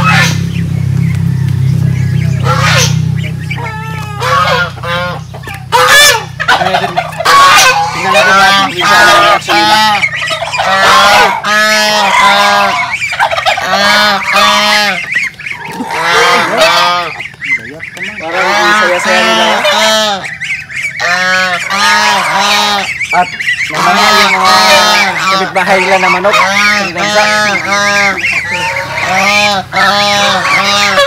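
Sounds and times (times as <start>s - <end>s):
geese honking: 0.0s - 31.0s.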